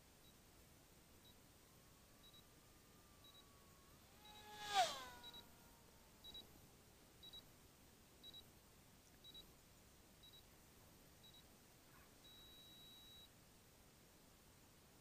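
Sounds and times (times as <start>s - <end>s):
faint high electronic beeps: 1.2s - 1.5s, 2.2s - 7.6s, 8.2s - 8.6s, 9.2s - 9.6s, 10.2s - 10.5s, 11.2s - 11.5s, 12.2s - 13.4s.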